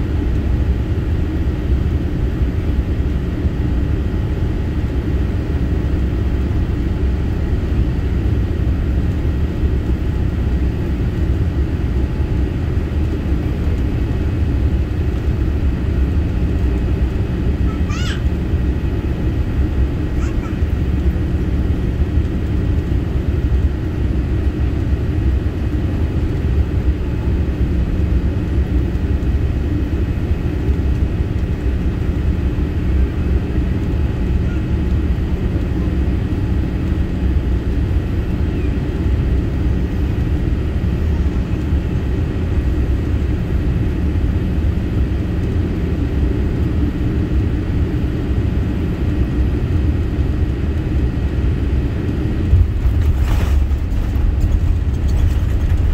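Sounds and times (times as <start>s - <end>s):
airplane cabin engine rumble: 0.0s - 55.9s.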